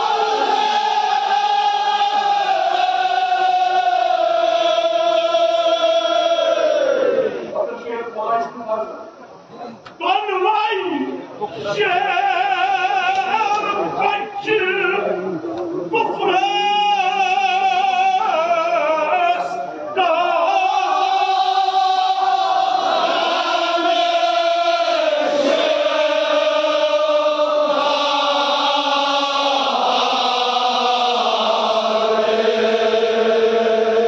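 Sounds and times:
men chanting together: 0:00.0 - 0:07.5, 0:16.0 - 0:34.0.

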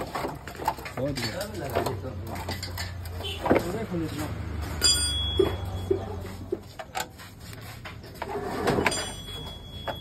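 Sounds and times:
metal clicks and knocks: 0:00.0 - 0:03.9.

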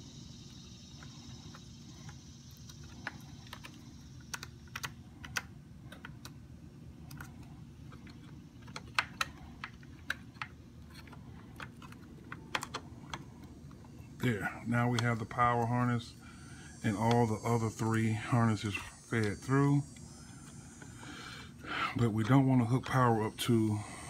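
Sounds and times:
steady low hum: 0:00.0 - 0:24.0
wire connectors clicking on plastic: 0:02.7 - 0:06.4, 0:07.0 - 0:13.9.

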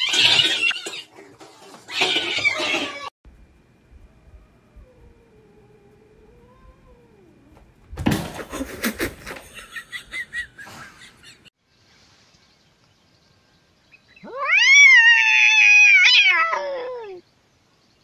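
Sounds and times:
scuffle of knocks and scrambling: 0:00.0 - 0:03.1
cat meowing: 0:14.2 - 0:17.2.

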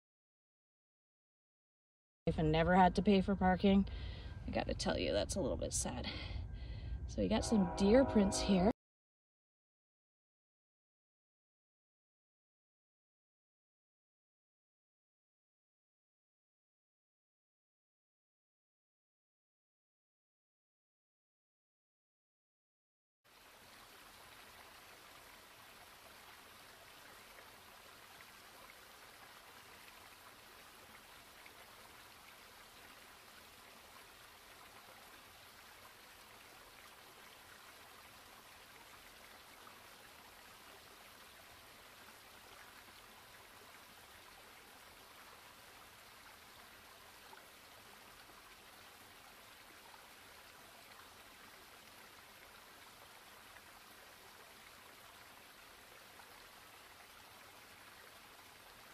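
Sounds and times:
running stream water: 0:23.3 - 0:58.9.

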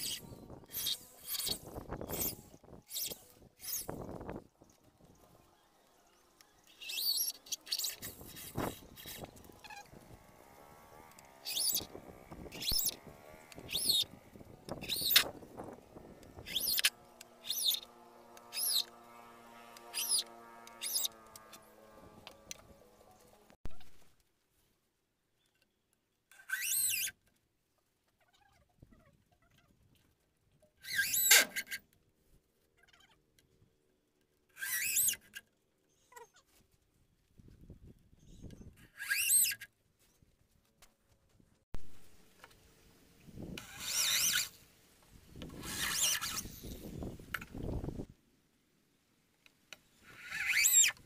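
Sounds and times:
cordless drill whining: 0:07.8 - 0:19.0.

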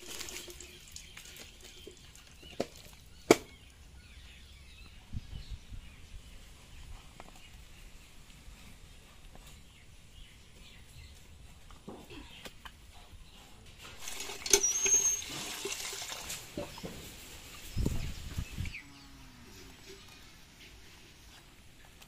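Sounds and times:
faint bird chirps: 0:14.5 - 0:15.4.

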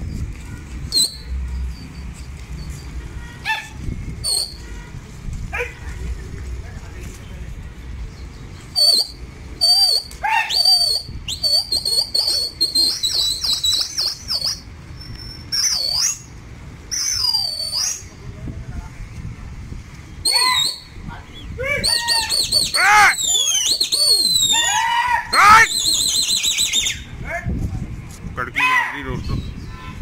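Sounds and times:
person whistling shrilly: 0:08.8 - 0:14.6, 0:16.9 - 0:18.0, 0:20.2 - 0:21.0, 0:21.8 - 0:27.1.

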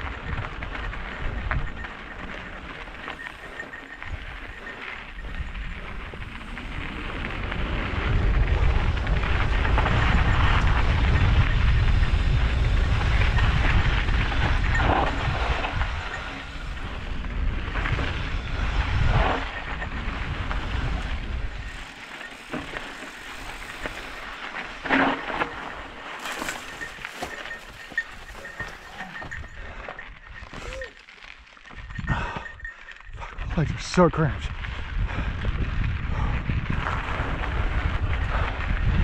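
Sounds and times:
wind buffeting microphone: 0:00.0 - 0:31.0, 0:31.7 - 0:39.0
bike rattling: 0:00.0 - 0:39.0
tyres crunching over gravel: 0:20.1 - 0:33.0.

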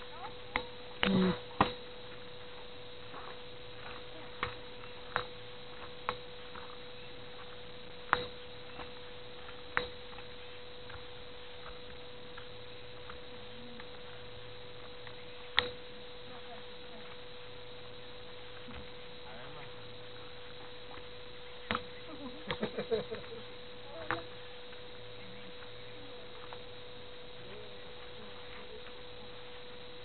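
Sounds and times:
faint electrical hum: 0:00.0 - 0:30.0.

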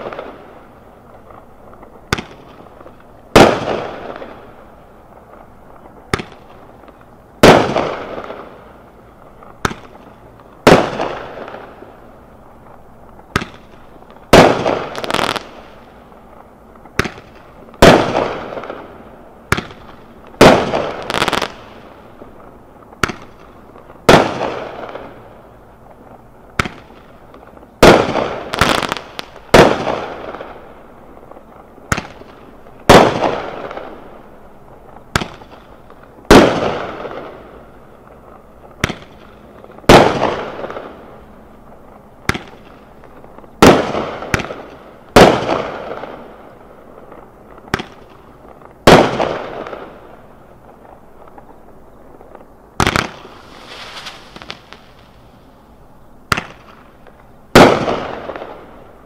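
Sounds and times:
small firework pops: 0:00.0 - 0:55.3, 0:56.3 - 0:58.9
firework burst bang: 0:52.8 - 0:55.2
firework shell launching crack: 0:52.8 - 0:55.4.

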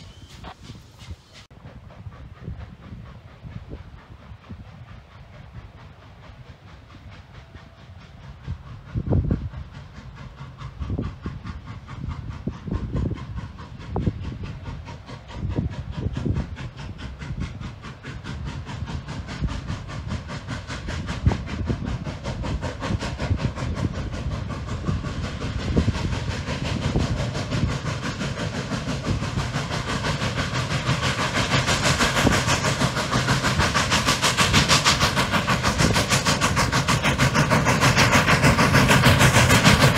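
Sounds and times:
steam hiss: 0:00.0 - 0:39.9
steam locomotive exhaust chuffs: 0:00.0 - 0:39.9.

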